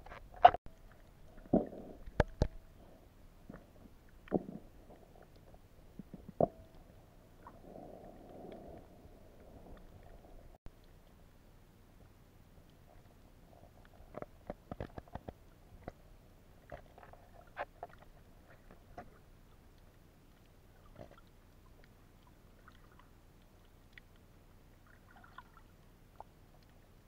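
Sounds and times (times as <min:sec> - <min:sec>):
muffled underwater clicks and knocks: 0:00.0 - 0:02.8, 0:03.4 - 0:07.6, 0:12.6 - 0:16.0, 0:16.6 - 0:21.9.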